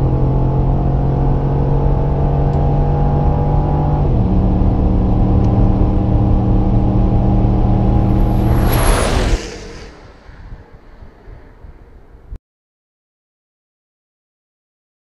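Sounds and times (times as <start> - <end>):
car engine at high revs: 0.0 - 9.6.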